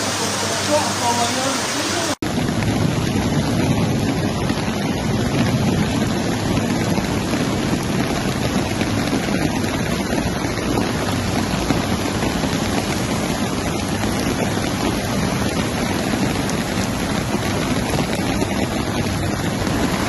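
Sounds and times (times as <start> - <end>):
floodwater rushing: 0.0 - 20.0
cars driving through water: 5.8 - 20.0.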